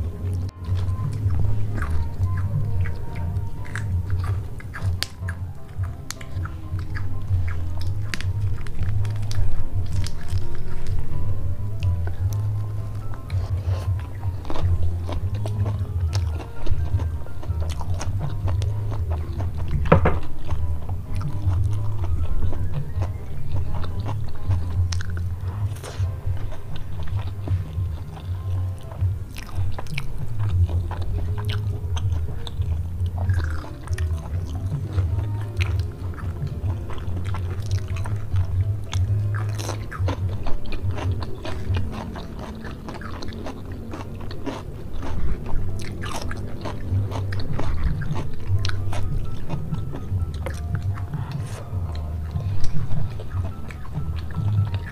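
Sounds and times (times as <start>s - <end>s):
background music: 0.0s - 54.9s
person chewing with mouth sounds: 0.0s - 54.9s.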